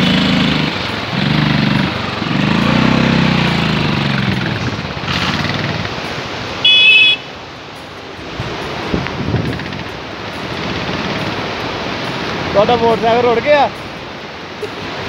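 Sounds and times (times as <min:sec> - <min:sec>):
vehicle engine on road: 0:00.0 - 0:15.0
vehicle horn: 0:06.6 - 0:07.4.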